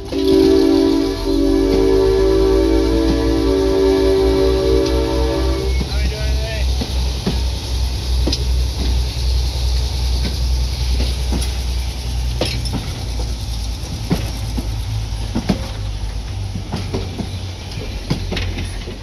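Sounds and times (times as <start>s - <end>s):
train coaches rumbling: 0.0s - 19.0s
wheels clicking over rail joints: 5.7s - 19.0s.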